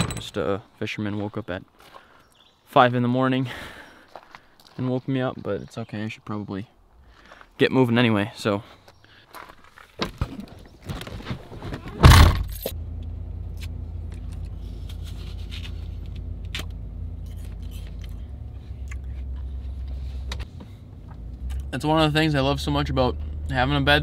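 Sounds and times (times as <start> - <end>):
door and key handling: 0.0 - 0.4
truck engine cranking and idling: 0.0 - 0.5, 12.0 - 24.0.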